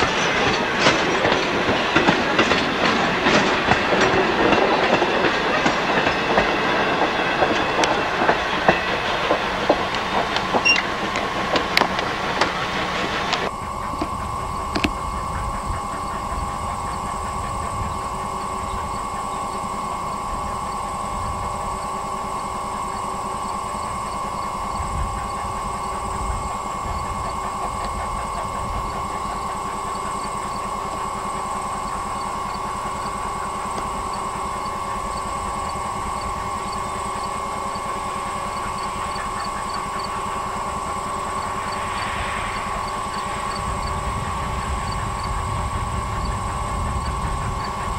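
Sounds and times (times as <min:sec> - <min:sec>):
distant steam locomotive: 0:00.0 - 0:47.9
steady high hum: 0:00.0 - 0:47.9
wind rumble on microphone: 0:41.5 - 0:47.9.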